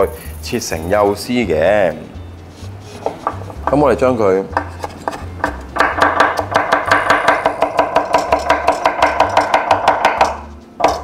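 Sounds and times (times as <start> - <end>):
cleaver chopping on a wooden board: 4.5 - 11.0.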